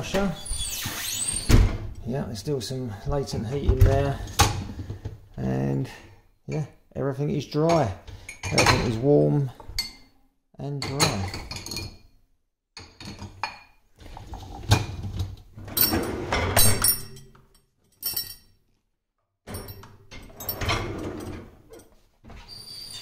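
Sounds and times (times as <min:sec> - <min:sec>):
dishwasher racks rattling: 0:14.2 - 0:17.2, 0:19.5 - 0:21.8.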